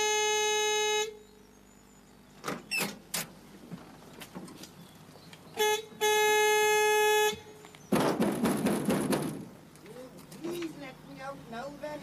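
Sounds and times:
vehicle horn: 0:00.0 - 0:01.2, 0:05.6 - 0:07.6
sharp knocks: 0:07.9 - 0:09.6.

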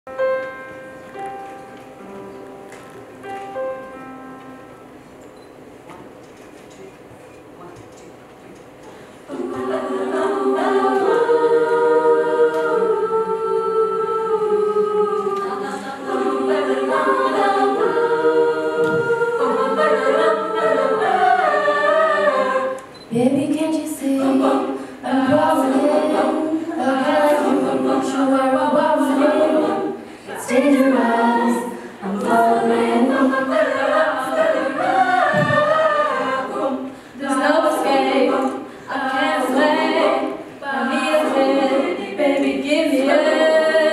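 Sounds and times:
female choir singing a cappella: 0:09.2 - 0:43.9.

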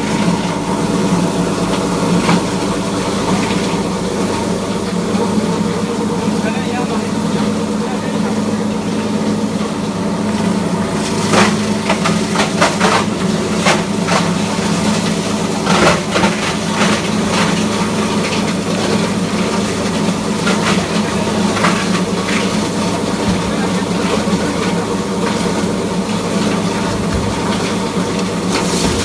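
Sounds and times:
granulator humming: 0:00.0 - 0:29.0
scrap cracking and clattering: 0:11.2 - 0:25.4.

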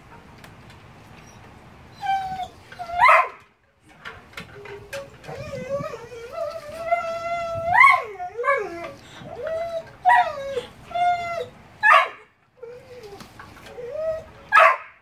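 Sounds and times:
dog whining and yowling: 0:01.2 - 0:03.4, 0:04.5 - 0:14.8
dog barking: 0:11.8 - 0:12.2, 0:14.5 - 0:15.0.

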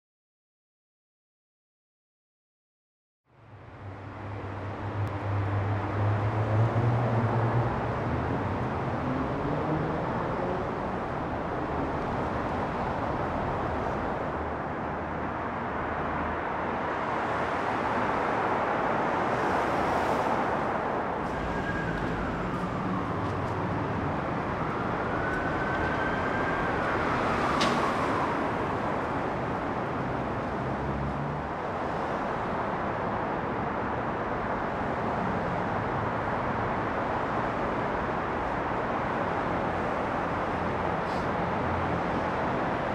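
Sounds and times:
cars driving past: 0:03.5 - 0:42.9
high squeal gliding: 0:21.2 - 0:23.2.

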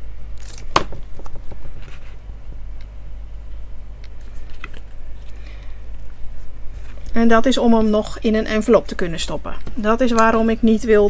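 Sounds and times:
steady low hum: 0:00.0 - 0:11.0
paper handling: 0:04.2 - 0:05.5.

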